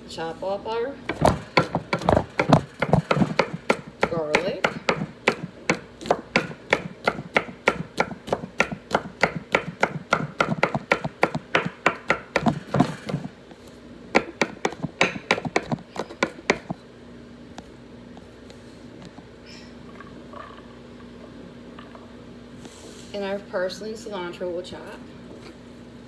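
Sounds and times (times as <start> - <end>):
knife chopping on wooden board: 1.1 - 13.3, 14.2 - 16.8.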